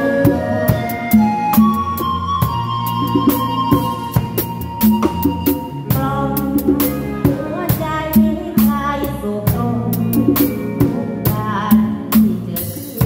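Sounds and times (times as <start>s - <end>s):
wavering melody line: 0.0s - 9.0s
bass line: 0.0s - 13.0s
drum kit beat: 0.0s - 13.0s.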